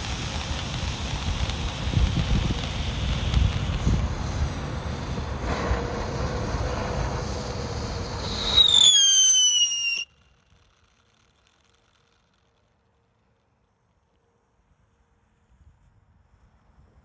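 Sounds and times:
firework whistle: 0.0s - 12.6s
firework fizzing: 0.0s - 13.8s.

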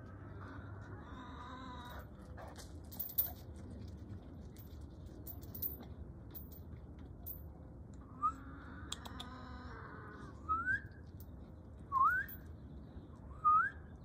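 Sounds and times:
person whistling to call dog: 11.9s - 12.4s, 13.4s - 13.8s.

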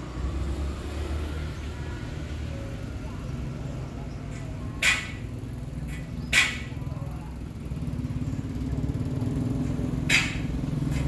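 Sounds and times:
motor scooter engine running: 5.2s - 11.0s.

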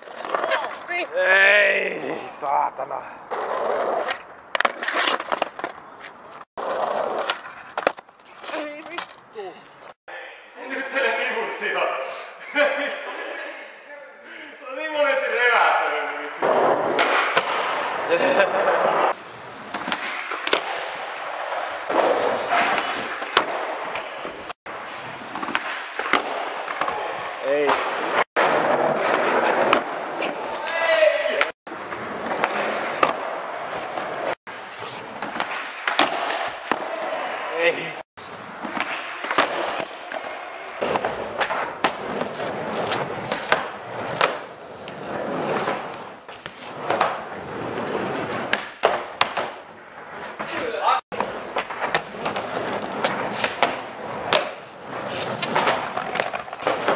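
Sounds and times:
skateboard clacking on ground: 0.0s - 1.2s, 3.3s - 10.0s
skateboard wheels rolling: 0.0s - 10.0s, 16.2s - 56.9s.

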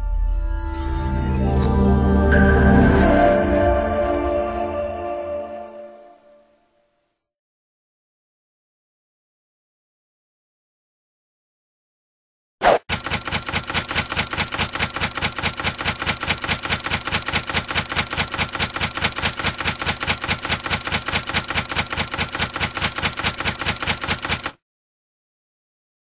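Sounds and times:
typewriter keys clicking: 12.9s - 24.6s.

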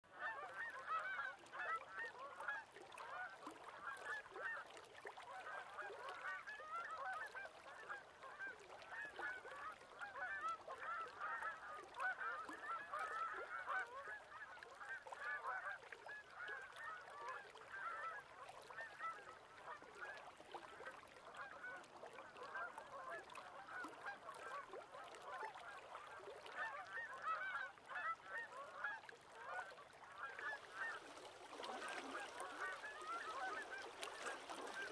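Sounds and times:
geese honking: 0.2s - 1.7s, 26.6s - 28.9s, 29.5s - 34.9s.

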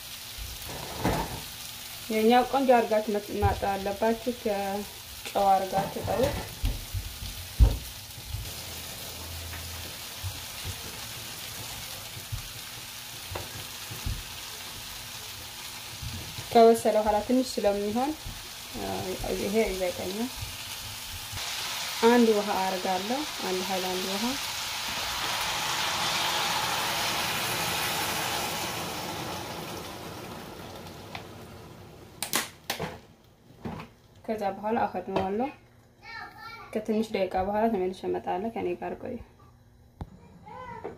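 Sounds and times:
vegetables sizzling in a pan: 0.0s - 32.7s.

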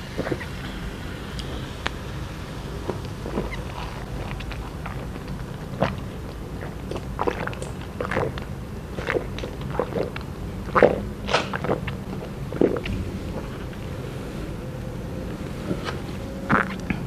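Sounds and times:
person gulping a drink: 2.8s - 14.0s, 16.5s - 17.0s.

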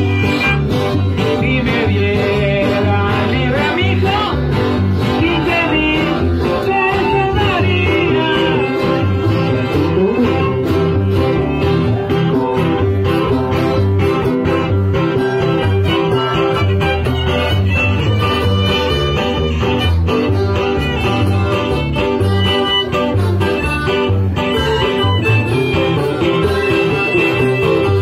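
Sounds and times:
plucked guitar beat: 0.0s - 28.0s
violin melody: 15.4s - 28.0s.

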